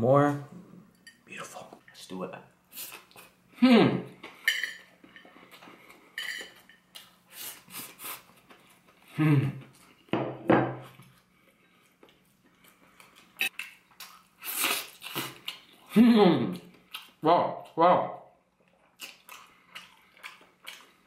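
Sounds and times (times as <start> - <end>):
closed-mouth voice hums: 3.6 - 4.1, 9.1 - 9.7, 15.9 - 16.7.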